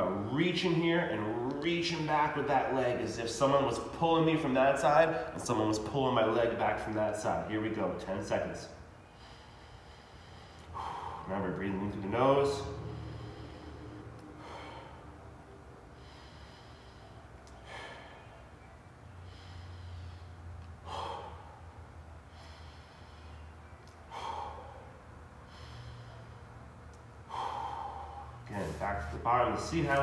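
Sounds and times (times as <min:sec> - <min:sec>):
man breathing through nose: 0:09.0 - 0:11.3, 0:12.5 - 0:28.8.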